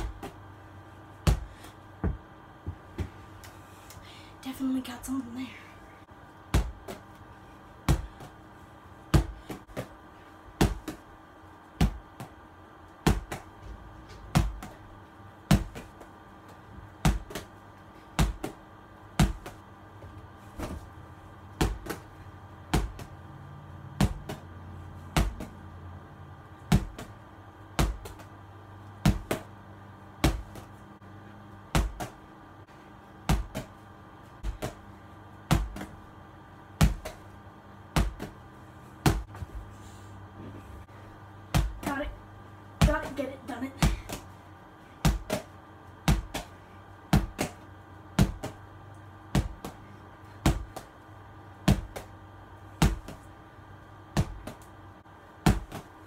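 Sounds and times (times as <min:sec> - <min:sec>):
ball hitting wall: 0:06.5 - 0:07.2, 0:10.6 - 0:11.1, 0:29.0 - 0:29.5, 0:31.7 - 0:32.2, 0:35.5 - 0:36.0, 0:36.8 - 0:37.3, 0:37.9 - 0:38.4, 0:39.0 - 0:39.6, 0:45.0 - 0:48.6, 0:51.6 - 0:52.2, 0:54.2 - 0:54.7, 0:55.4 - 0:56.0.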